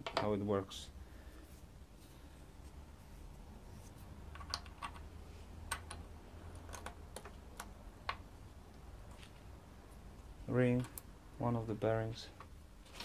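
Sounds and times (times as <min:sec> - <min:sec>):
small steel parts clicking: 0:04.3 - 0:08.3.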